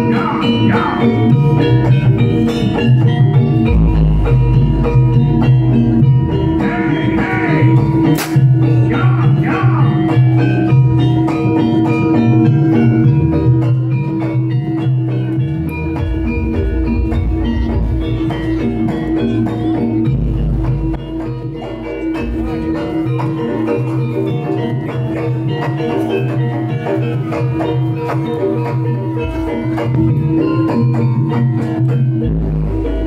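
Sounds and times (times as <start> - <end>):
gamelan ensemble playing: 0.0 - 33.0
whip crack: 8.2 - 8.5.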